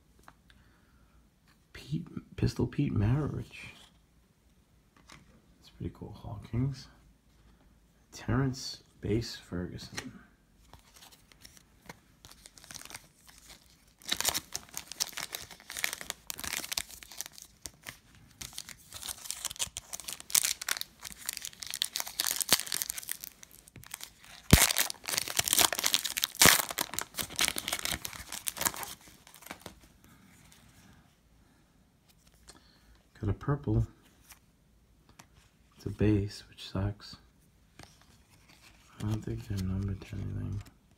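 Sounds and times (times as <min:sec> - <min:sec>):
foil wrapper crinkling: 0:12.3 - 0:29.8
foil wrapper tearing: 0:12.6 - 0:17.7, 0:18.4 - 0:29.7.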